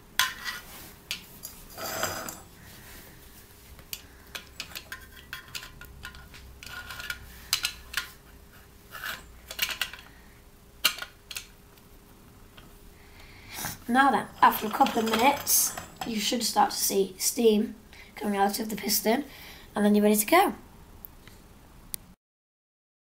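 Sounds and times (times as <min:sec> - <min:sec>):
metal tray scraping: 0:01.7 - 0:02.5, 0:14.0 - 0:16.3.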